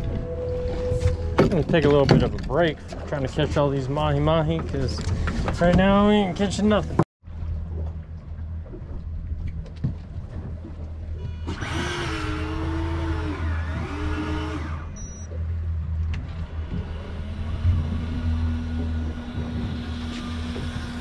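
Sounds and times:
outboard engines idling: 0.0s - 21.0s
high motor whine: 11.2s - 21.0s.

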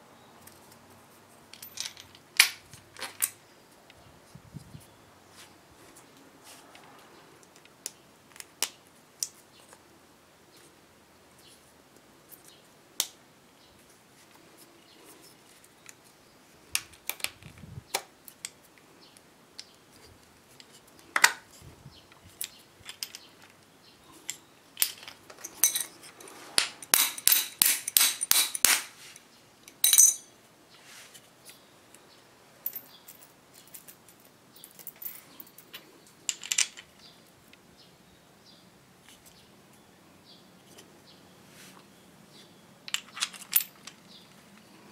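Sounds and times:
metal hardware clicking and clinking: 1.5s - 3.4s, 22.2s - 28.8s, 29.6s - 30.3s, 32.6s - 37.1s, 42.9s - 44.2s.

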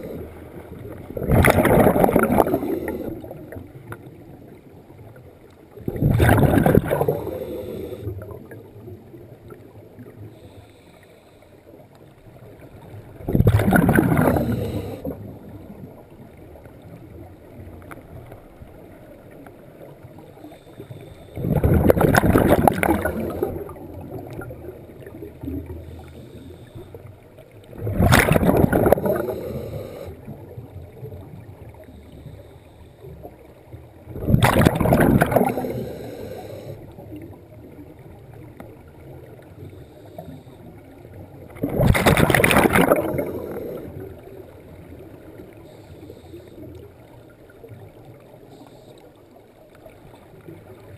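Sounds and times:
diver exhaling bubbles underwater: 0.0s - 3.7s, 5.8s - 8.6s, 13.2s - 15.4s, 21.4s - 25.8s, 27.6s - 30.6s, 34.1s - 36.8s, 41.5s - 44.4s.

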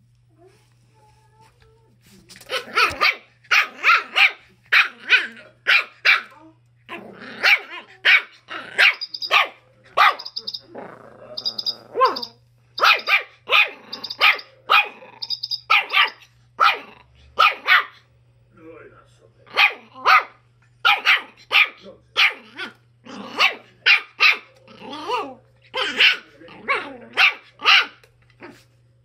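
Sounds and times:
puppy barking: 2.5s - 6.4s, 7.4s - 10.6s, 12.0s - 18.0s, 19.5s - 28.1s.

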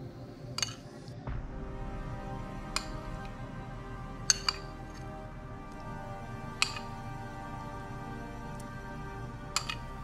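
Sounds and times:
background music with sustained tones: 0.0s - 10.0s.

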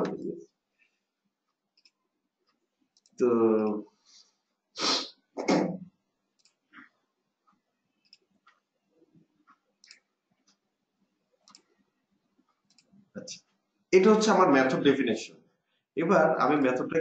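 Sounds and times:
computer mouse clicks: 1.7s - 3.8s, 6.4s - 6.9s, 8.0s - 8.7s, 9.4s - 10.6s, 11.4s - 11.8s, 12.5s - 13.5s.

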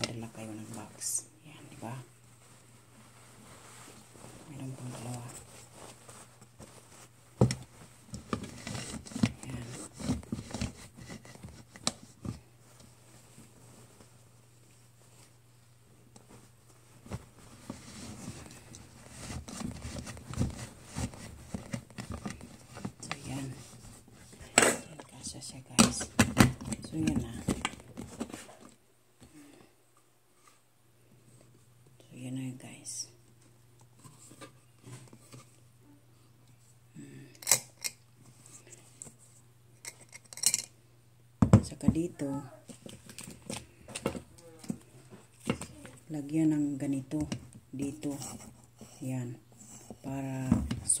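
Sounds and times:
cloth rustling and scrunching: 0.0s - 24.4s.

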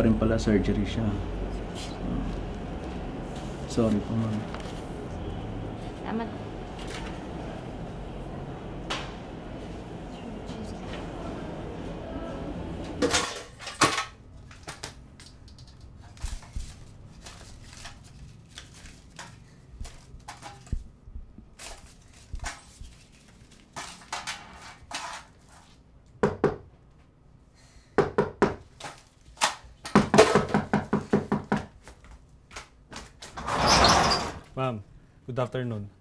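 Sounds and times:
banknotes rustling: 16.0s - 20.9s, 21.5s - 24.1s.

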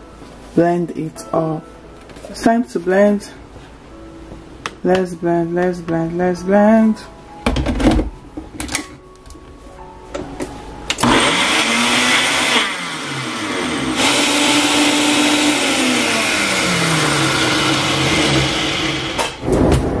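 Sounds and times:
electric blender running: 11.0s - 19.4s.

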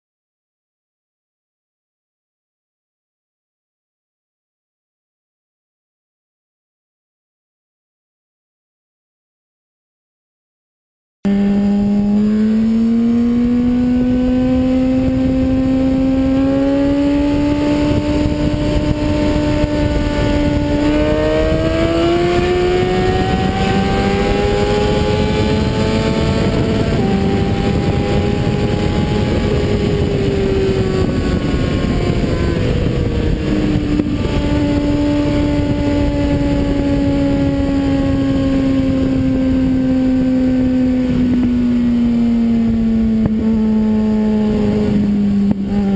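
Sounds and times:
motorcycle engine at speed: 11.2s - 45.9s
heavy wind rush: 11.4s - 45.9s.

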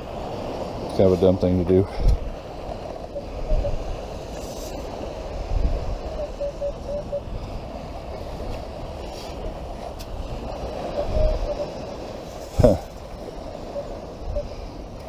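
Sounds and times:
wind rumbling on microphone: 0.0s - 15.0s
metal detector beeps: 6.0s - 7.4s, 10.9s - 11.8s, 13.6s - 14.6s.

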